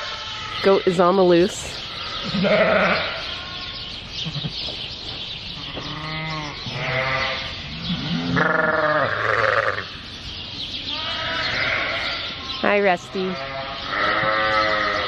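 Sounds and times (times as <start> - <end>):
sheep bleating: 2.0 - 4.6, 5.6 - 9.9, 10.9 - 15.0.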